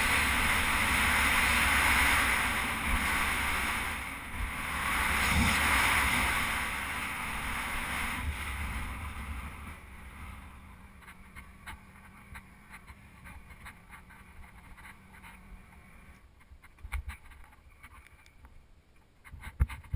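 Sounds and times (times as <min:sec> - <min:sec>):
motorcycle road noise: 0:00.0 - 0:16.3
wind rushing over camera: 0:00.0 - 0:18.6, 0:19.2 - 0:19.9.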